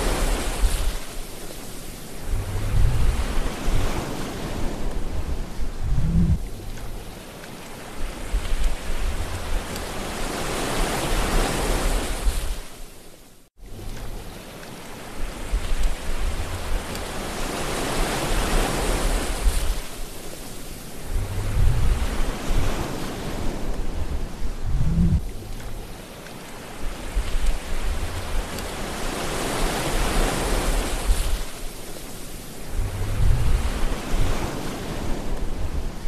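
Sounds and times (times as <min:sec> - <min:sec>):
wind rumbling on microphone: 0:00.0 - 0:12.9, 0:13.6 - 0:36.0
water rushing and splashing on hull: 0:00.0 - 0:36.0.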